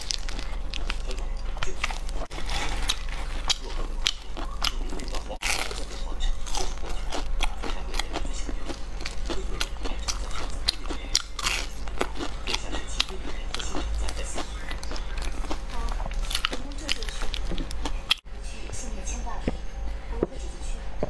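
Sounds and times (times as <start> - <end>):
crunchy chewing: 0.0 - 18.2.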